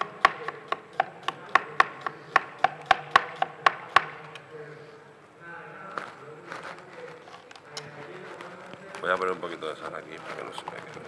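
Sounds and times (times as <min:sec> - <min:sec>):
knife chopping on cutting board: 0:00.0 - 0:04.2.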